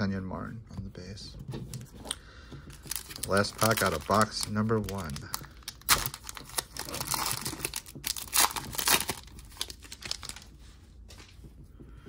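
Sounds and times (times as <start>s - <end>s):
foil wrapper tearing and crinkling: 2.8s - 10.5s.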